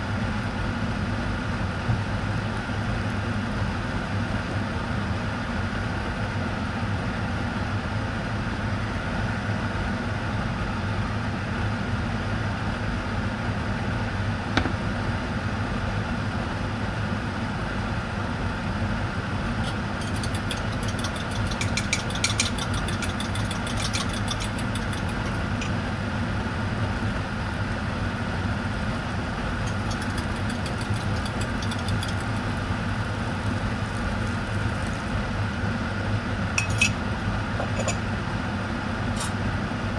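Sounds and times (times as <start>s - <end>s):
steady low hum: 10.4s - 39.9s.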